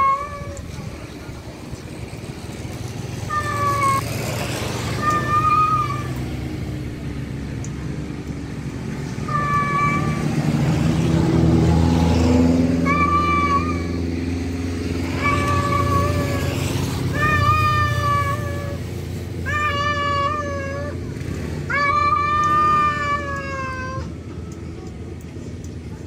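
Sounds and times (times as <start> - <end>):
cat meowing: 0.0 - 0.7, 3.3 - 4.0, 5.0 - 6.2, 9.2 - 10.3, 12.7 - 14.0, 15.0 - 18.8, 19.4 - 21.0, 21.7 - 24.1
vehicle engine droning: 0.0 - 26.0.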